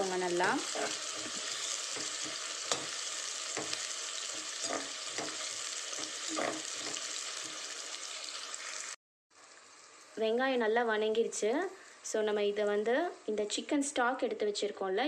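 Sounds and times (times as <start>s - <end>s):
onions sizzling in hot oil: 0.0s - 15.0s
steel skimmer scraping a pot: 0.6s - 3.0s, 4.3s - 7.1s.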